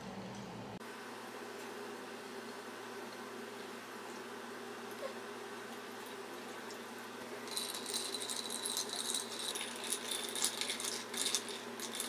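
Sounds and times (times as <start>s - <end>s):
ice cubes clinking in glass: 7.5s - 12.0s.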